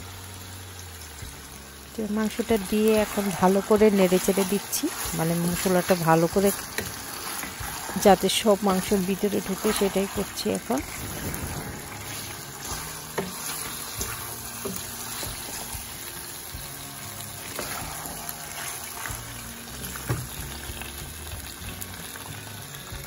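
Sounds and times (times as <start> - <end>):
chicken sizzling in a pan: 0.0 - 23.0
soft background music: 0.0 - 23.0
spatula scraping a pan: 2.4 - 20.4.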